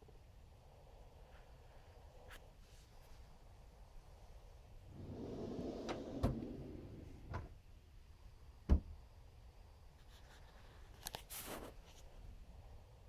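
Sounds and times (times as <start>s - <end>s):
drawer knocks: 5.0s - 7.5s.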